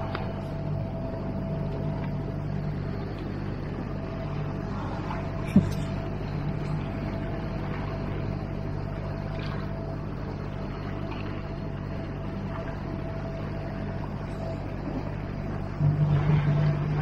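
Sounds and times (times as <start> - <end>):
boat outboard engine hum: 0.0 - 17.0
faint high note: 15.7 - 17.0.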